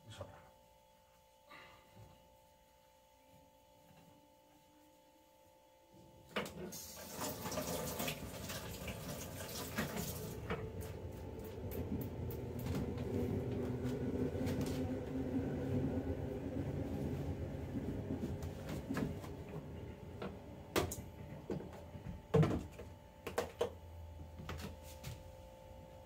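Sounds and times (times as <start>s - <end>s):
faint steady hum: 0.0s - 26.0s
tap water running into metal sink: 6.7s - 10.6s.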